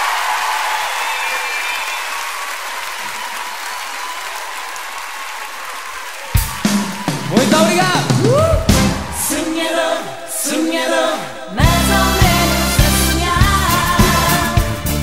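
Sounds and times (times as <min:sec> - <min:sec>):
audience applauding: 0:00.0 - 0:09.5
loud music: 0:06.4 - 0:09.9, 0:11.6 - 0:15.0.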